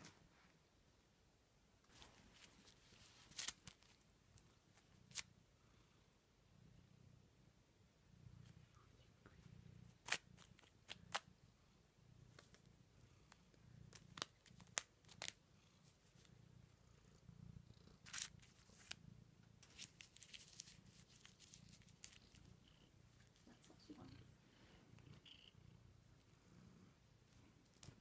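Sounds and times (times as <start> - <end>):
cat purring: 4.4 - 28.0
wrapper crinkling: 19.6 - 22.4.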